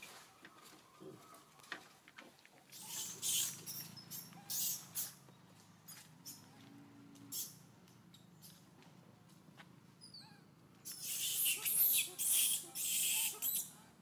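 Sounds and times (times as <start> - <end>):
baby monkey screaming: 2.8 - 5.2, 10.1 - 13.8
baby monkey squeaks: 2.8 - 5.2, 7.3 - 7.6, 10.0 - 13.8.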